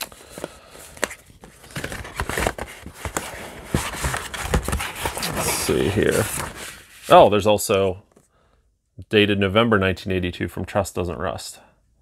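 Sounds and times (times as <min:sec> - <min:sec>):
paper rustling: 0:00.0 - 0:07.3.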